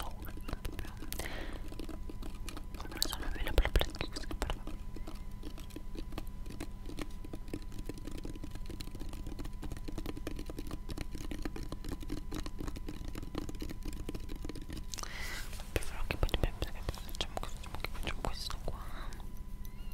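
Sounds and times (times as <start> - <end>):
fingers tapping on hard object: 0.0 - 15.1
faint electrical hum: 0.0 - 19.9.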